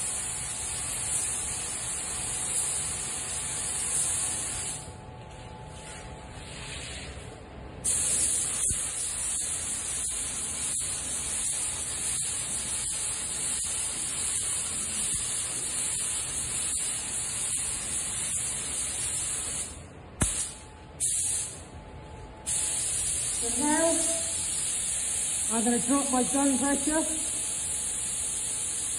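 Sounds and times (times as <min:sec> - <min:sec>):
paint spray gun hissing: 0:07.8 - 0:21.5, 0:22.5 - 0:28.9.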